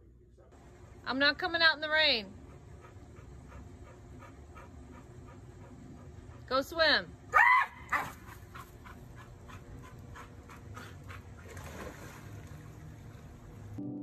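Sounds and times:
small dog yelping: 7.3s - 8.4s
water dripping and splashing: 11.4s - 13.8s.

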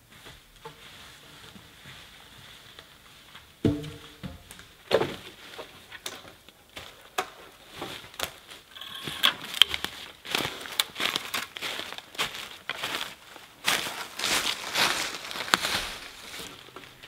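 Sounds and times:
dry branches creaking and cracking: 5.5s - 17.0s
leaf litter crunching underfoot: 9.4s - 17.0s
branches snapping: 14.3s - 17.0s.

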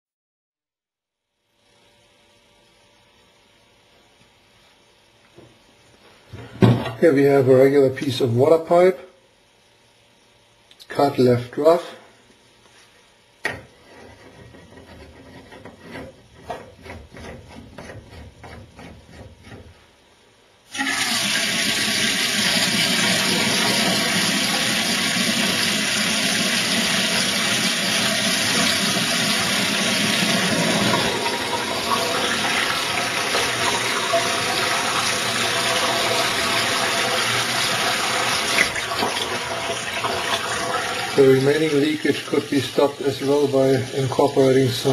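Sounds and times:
water rushing into metal sink: 20.7s - 44.9s.

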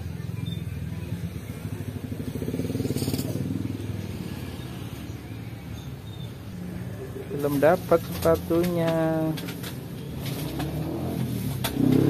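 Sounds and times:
vehicle engine passing: 9.8s - 12.0s.

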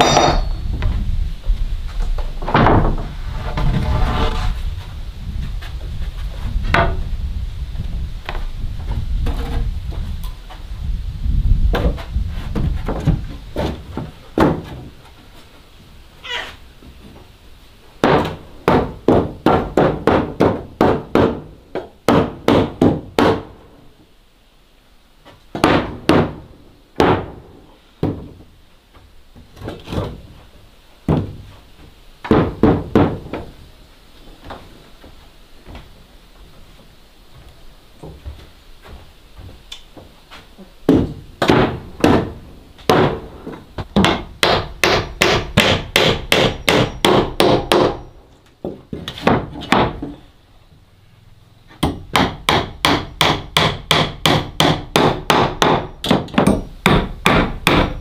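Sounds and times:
hammer driving nails into wood: 22.1s - 23.5s, 40.9s - 43.2s, 44.0s - 48.1s, 51.8s - 58.0s.

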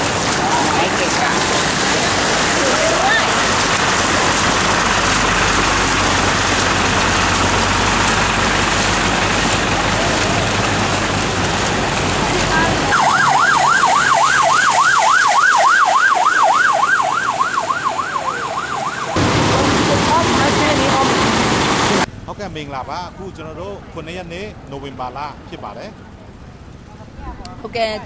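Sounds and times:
emergency vehicle siren yelping: 0.0s - 5.3s, 12.8s - 21.1s
low engine hum: 0.0s - 28.0s
vehicles on flooded road: 0.0s - 28.0s.

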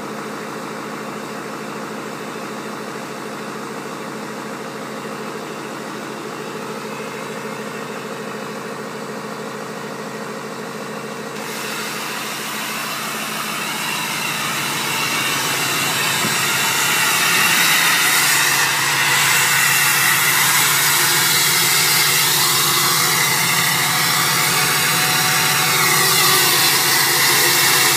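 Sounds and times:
diesel engine idling: 0.0s - 27.9s
hissy exhaust rush: 11.4s - 27.9s.

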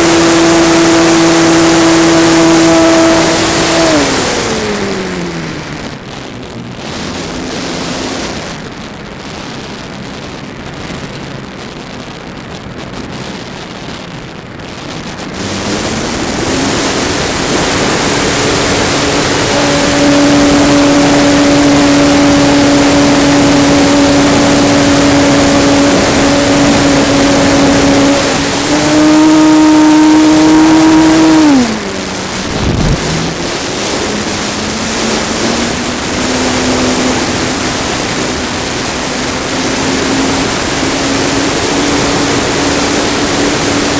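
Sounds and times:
model plane propeller whine: 0.0s - 6.0s, 15.4s - 43.9s
wind noise on microphone: 0.0s - 43.9s.

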